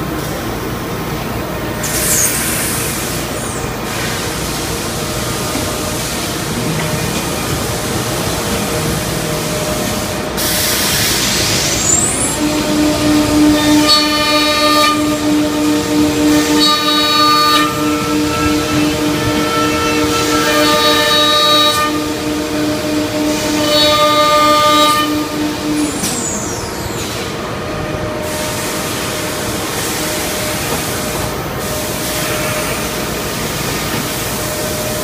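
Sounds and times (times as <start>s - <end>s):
cnc router rushing noise: 1.3s - 35.0s
loud hiss: 7.7s - 21.4s
router spindle humming and whining: 11.3s - 28.0s.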